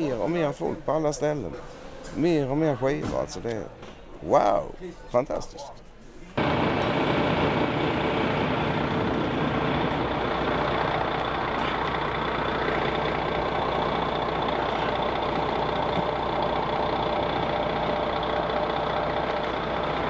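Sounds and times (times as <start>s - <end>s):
heavy vehicle engine idling: 6.4s - 20.0s.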